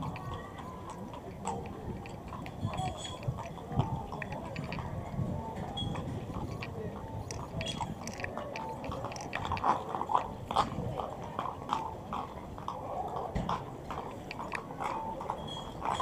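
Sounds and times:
horse hooves on pavement: 0.0s - 16.0s.

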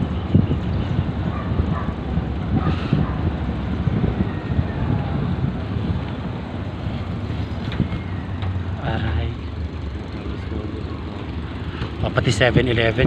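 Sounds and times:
wind buffeting microphone: 0.0s - 8.8s
moving vehicle rumble: 0.0s - 13.0s.

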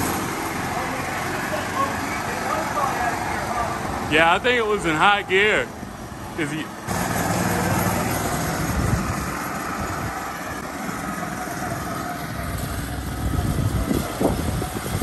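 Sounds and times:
vehicle rumbling over gravel: 6.9s - 15.0s.

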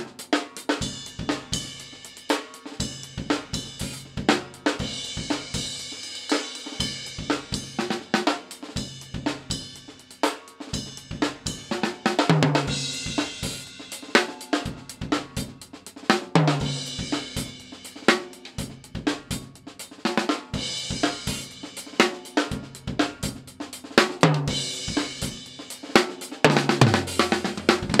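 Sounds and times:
snare drum: 0.0s - 28.0s
bass drum: 26.5s - 28.0s.

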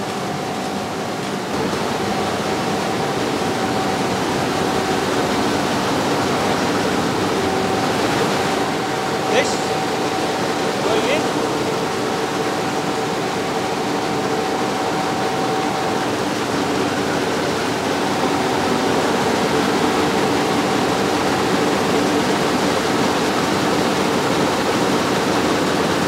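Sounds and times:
mill machinery rushing noise: 0.0s - 26.0s.

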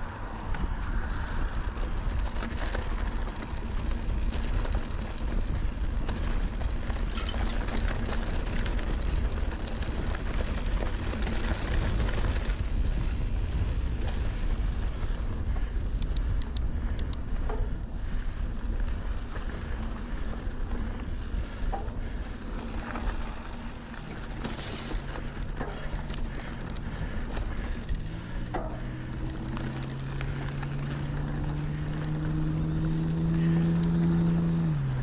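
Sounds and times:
bike tyres rolling on dirt: 0.0s - 35.0s
wind buffeting microphone: 0.0s - 35.0s
sharp ticks: 13.4s - 17.2s.

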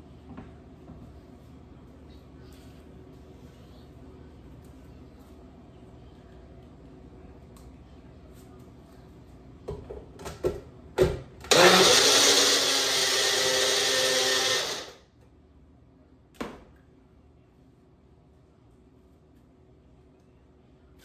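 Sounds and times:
blender motor running: 11.5s - 15.0s.

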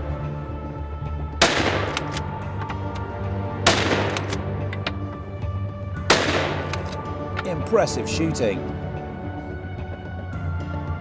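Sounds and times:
background music: 0.0s - 11.0s
rifle shots: 1.4s - 2.4s, 3.6s - 4.6s, 6.1s - 7.0s.

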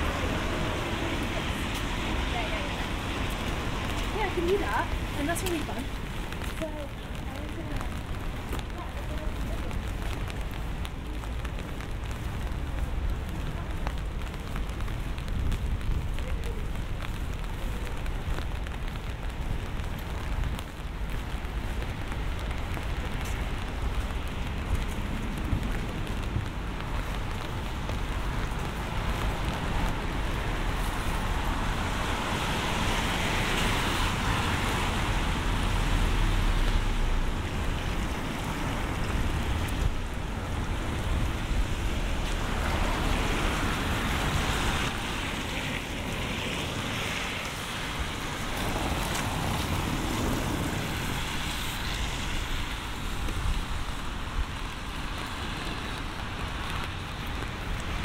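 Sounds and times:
steady rain: 0.0s - 58.0s
car tyres hissing on wet road: 20.9s - 58.0s.

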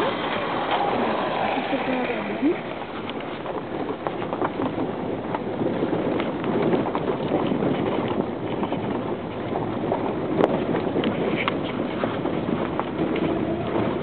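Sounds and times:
road and engine noise: 0.0s - 14.0s
knocks and rattles in vehicle: 1.9s - 14.0s.

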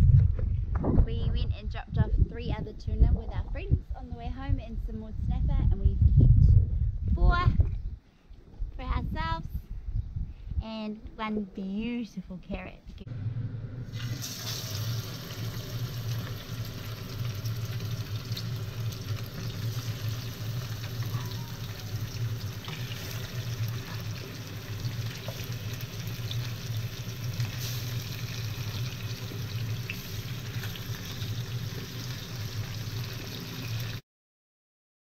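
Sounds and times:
steady low hum: 0.0s - 28.5s
fish sizzling in frying pan: 13.9s - 34.0s.

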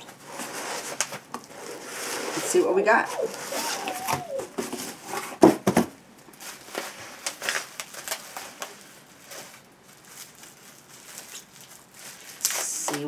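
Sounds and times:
packaging rustling and crinkling: 0.1s - 13.0s.

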